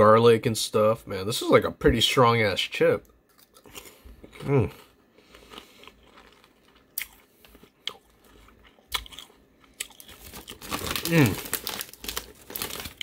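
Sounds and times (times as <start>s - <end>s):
chewing: 3.3s - 10.6s
potato chips crunching: 3.3s - 13.0s.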